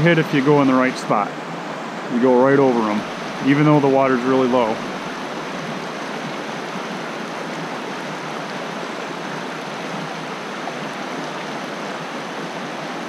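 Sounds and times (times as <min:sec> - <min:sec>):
water rushing over rocks: 0:00.0 - 0:13.0.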